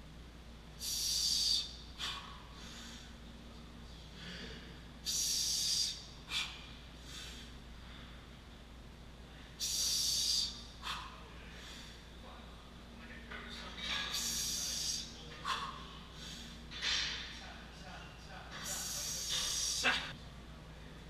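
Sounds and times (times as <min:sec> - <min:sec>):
man breathing sharply: 0:00.8 - 0:03.2, 0:04.0 - 0:08.4, 0:09.3 - 0:12.1, 0:14.1 - 0:16.6, 0:18.6 - 0:19.9.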